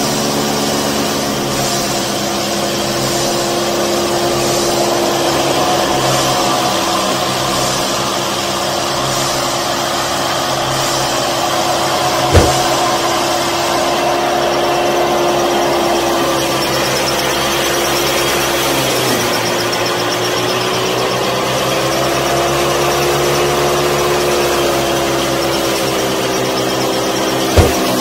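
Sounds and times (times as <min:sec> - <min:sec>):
small thresher humming: 0:10.2 - 0:15.6, 0:24.0 - 0:28.0.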